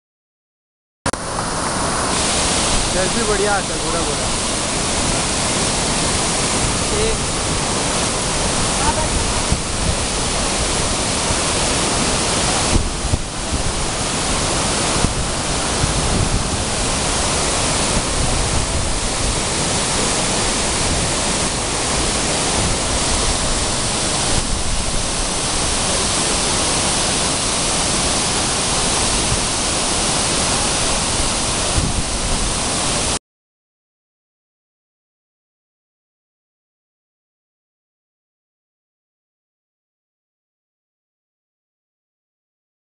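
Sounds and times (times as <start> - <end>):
waterfall rushing: 1.1 - 33.2.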